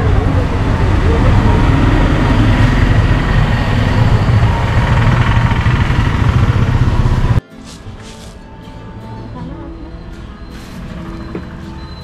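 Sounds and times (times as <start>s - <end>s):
nearby engine rumbling: 0.0s - 7.4s
street traffic noise: 0.0s - 12.0s.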